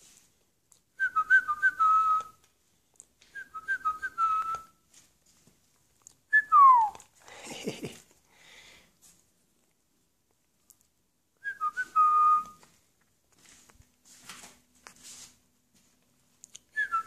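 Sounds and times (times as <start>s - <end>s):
person whistling: 1.0s - 2.4s, 3.4s - 4.8s, 6.3s - 7.1s, 11.4s - 12.6s, 16.8s - 17.0s
scuffing rustling noise: 4.8s - 5.9s, 12.5s - 16.4s.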